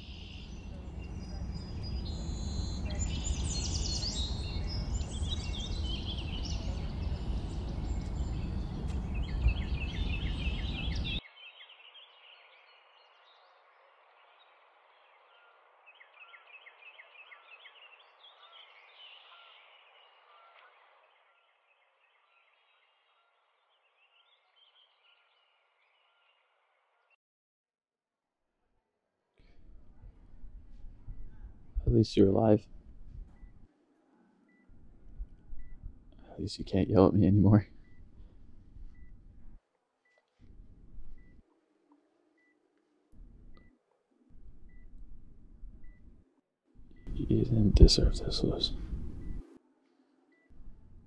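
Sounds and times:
birds chirping: 0.0 - 13.5, 14.1 - 26.4, 29.5 - 33.7, 34.5 - 39.6, 40.3 - 41.4, 43.2 - 46.2, 46.8 - 49.6
loud steady outdoor rush: 0.6 - 11.2.

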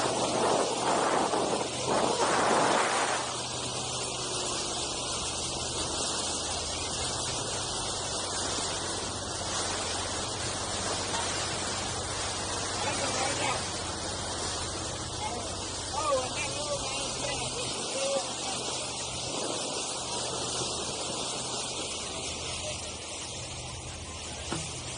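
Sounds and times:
wind on microphone: 0.0 - 14.9, 18.6 - 22.3
churning wake water: 0.0 - 24.9.

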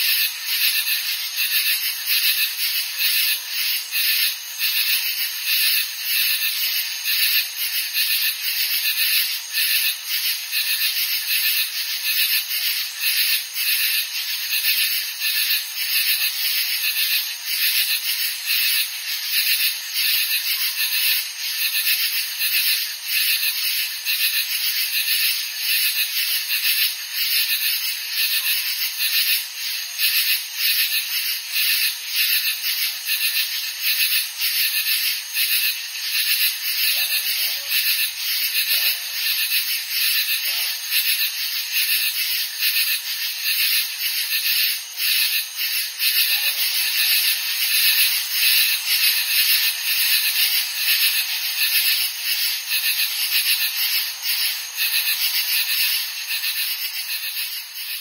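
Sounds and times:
katydids calling: 31.7 - 58.0.

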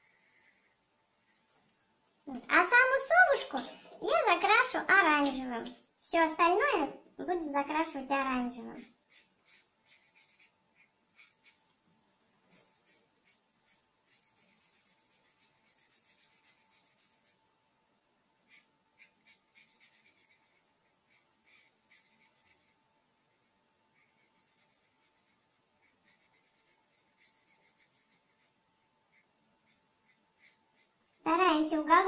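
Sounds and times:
marker scratching on paper: 8.8 - 11.6, 12.5 - 17.4, 18.5 - 23.4, 24.0 - 28.5, 29.1 - 31.6.

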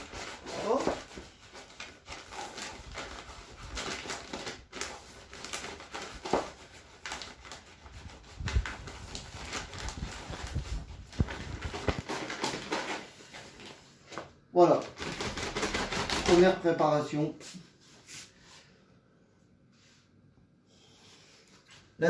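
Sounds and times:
plastic bag crinkling: 0.0 - 16.8.

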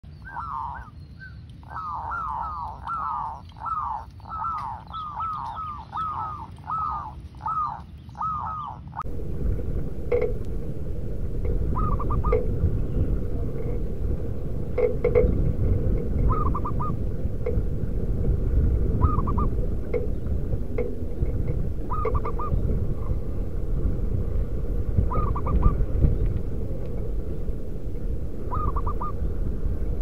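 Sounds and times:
dove cooing: 1.7 - 30.0
low rumble: 9.0 - 30.0.

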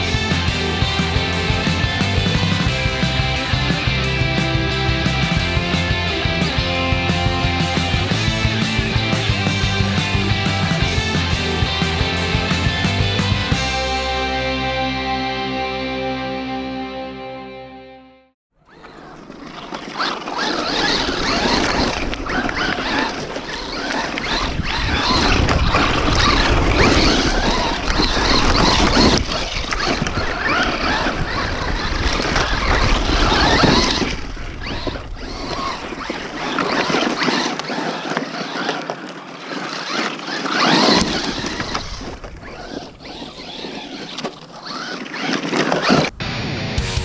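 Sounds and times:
electric motor of rc truck: 0.0 - 13.8, 18.6 - 46.1
tyres throwing dirt: 18.7 - 46.2.

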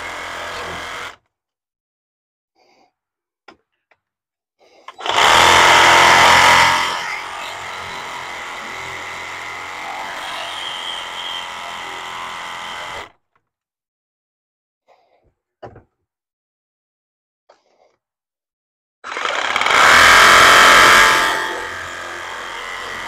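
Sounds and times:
handheld electric power tool running: 0.0 - 1.2, 5.0 - 13.1, 19.0 - 23.0.

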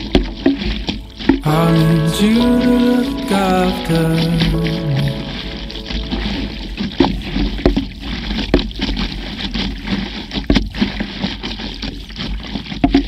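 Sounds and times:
water lapping against paddleboard: 0.0 - 1.4, 4.3 - 13.0.

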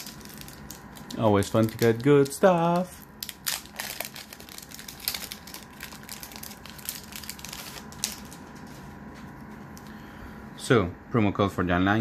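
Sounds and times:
foil wrapper crinkling as torn: 0.0 - 8.8.

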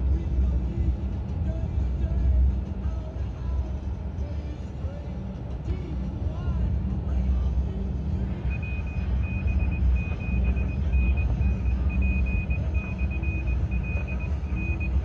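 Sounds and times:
truck engine and tyres rumbling: 0.0 - 15.0
high-pitched beeping tone: 8.4 - 15.0.

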